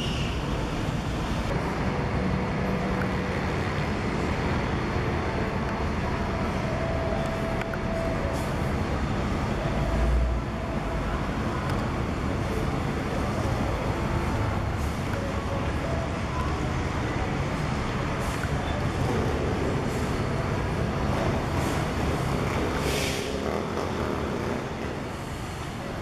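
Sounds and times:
bus diesel engine rumbling: 0.0s - 26.0s.

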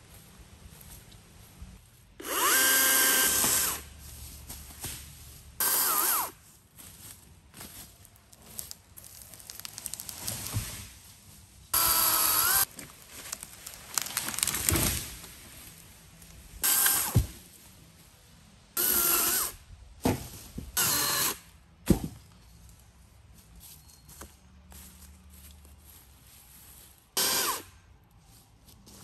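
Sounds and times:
electric chainsaw whining: 2.2s - 3.9s, 5.6s - 6.4s, 11.8s - 12.7s, 16.6s - 17.2s, 18.8s - 19.6s, 20.8s - 21.4s, 27.2s - 27.7s
small tree cracking and crashing: 8.6s - 10.8s, 12.7s - 15.4s.

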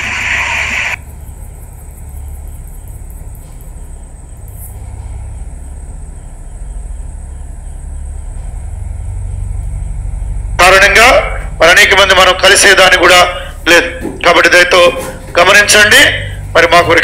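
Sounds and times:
loud hiss: 0.0s - 1.0s
steady low rumble: 0.0s - 17.0s.

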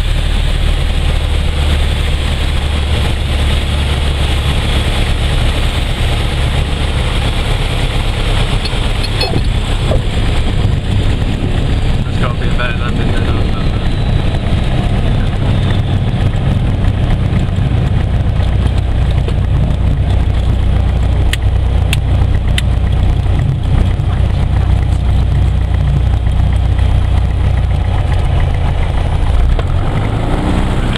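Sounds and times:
aircraft engine droning: 0.0s - 30.9s.

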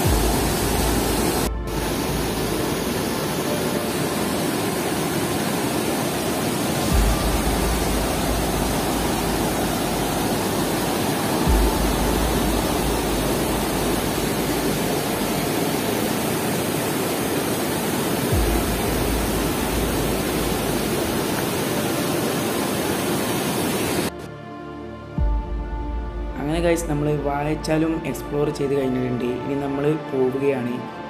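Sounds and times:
white water rushing over rocks: 0.0s - 24.1s.

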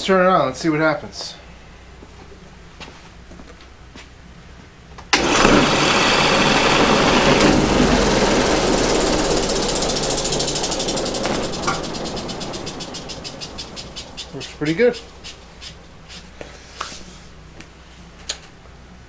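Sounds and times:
sander motor spinning: 5.1s - 16.4s
rapid even ticking of wheel: 5.2s - 16.4s.

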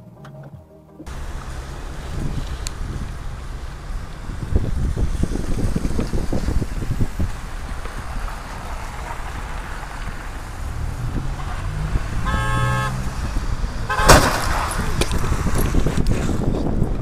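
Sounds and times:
traffic noise: 1.0s - 17.0s
cars crashing: 1.1s - 16.8s
car horn blaring: 11.1s - 14.7s
debris scattering: 13.9s - 15.2s.

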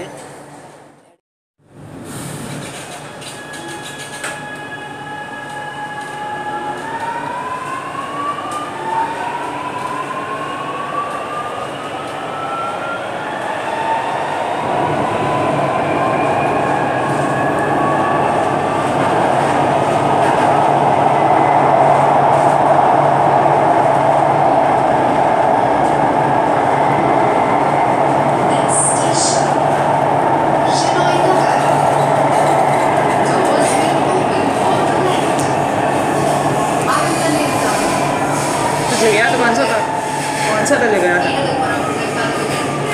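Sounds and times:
train wheels rumbling in tunnel: 1.6s - 42.9s.

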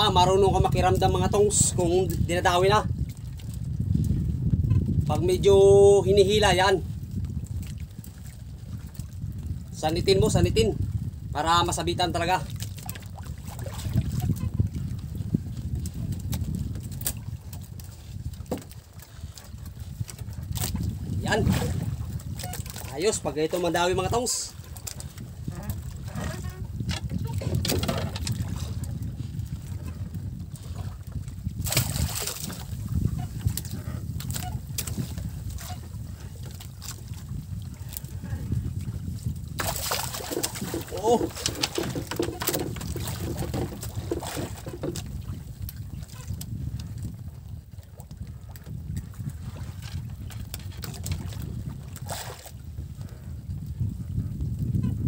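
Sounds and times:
water sloshing against boat hull: 0.0s - 5.6s, 6.4s - 53.6s
wind rumbling on microphone: 0.0s - 55.0s
water splash: 31.6s - 32.8s, 39.6s - 44.7s.

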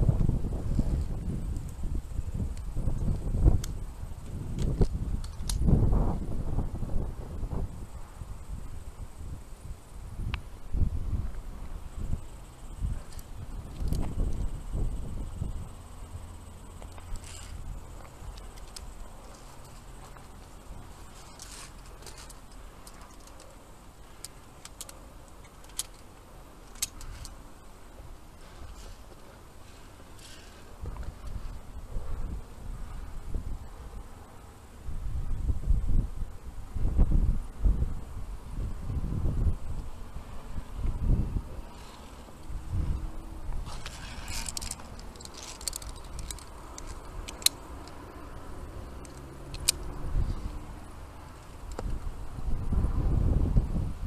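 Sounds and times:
wind rumble on microphone: 0.0s - 25.9s, 26.8s - 54.0s
carabiners clinking on steel cable: 12.2s - 27.5s, 41.7s - 50.5s.

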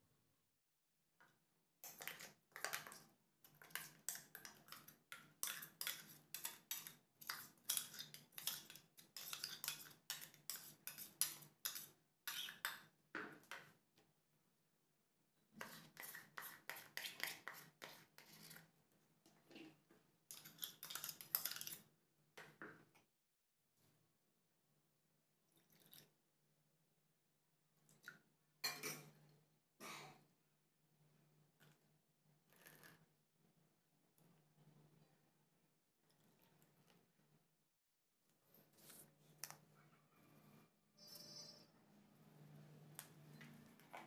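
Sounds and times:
metal spoon scraping and clinking: 5.4s - 12.8s, 20.3s - 21.8s.

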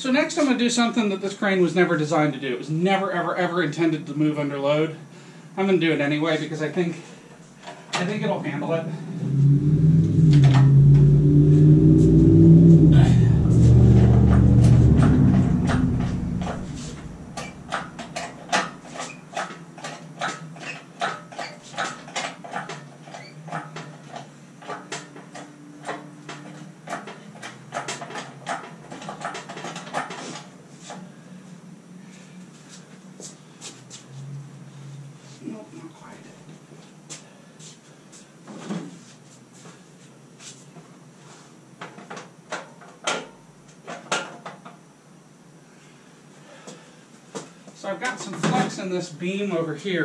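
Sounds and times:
sharp clicks and knocks: 10.1s - 11.1s, 12.9s - 30.2s
crane casters rumbling on concrete: 12.9s - 19.2s.

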